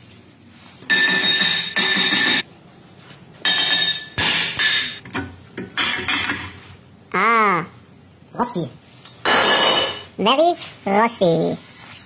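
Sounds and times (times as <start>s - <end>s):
hammer striking ringing brake disc: 0.9s - 2.4s.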